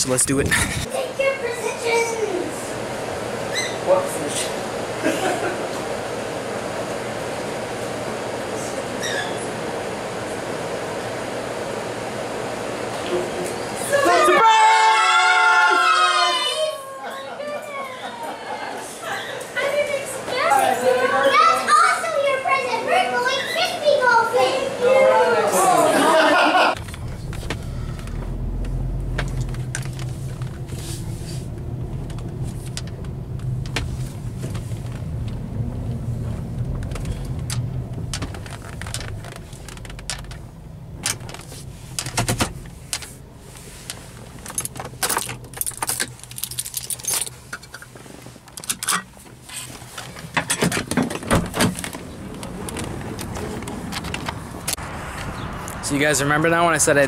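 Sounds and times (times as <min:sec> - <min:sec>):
car engine and road hum: 0:26.7 - 0:57.0
clicks and jingles: 0:44.4 - 0:47.9.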